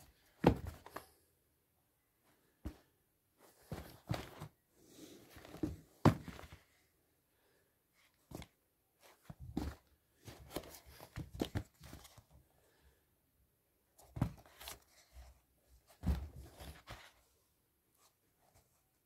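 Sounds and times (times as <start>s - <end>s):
shoe fabric rustling: 0.0s - 1.1s, 2.4s - 6.7s, 8.2s - 12.3s
sneakers thumping on rug: 0.4s - 1.0s, 3.6s - 4.5s, 5.4s - 6.4s.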